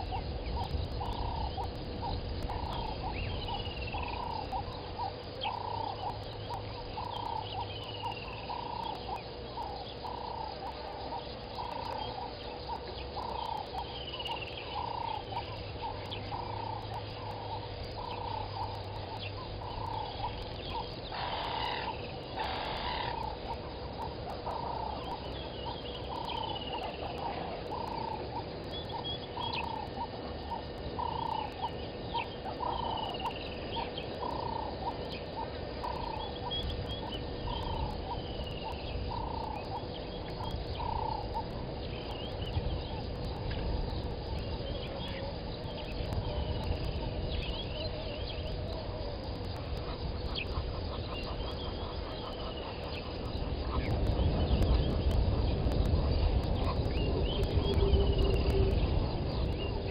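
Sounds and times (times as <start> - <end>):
low animal call: 0.0 - 43.1.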